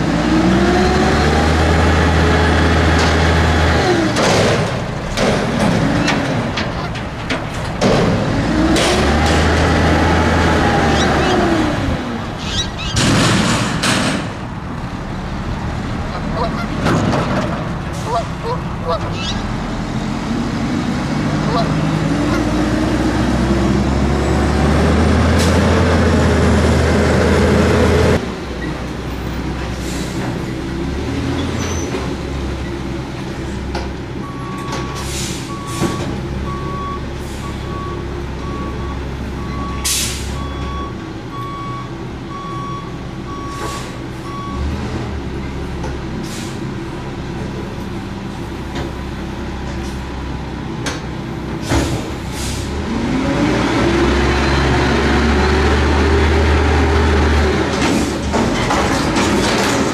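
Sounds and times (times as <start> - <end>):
diesel truck engine running: 0.0 - 59.9
reversing alarm beeps: 34.3 - 44.7.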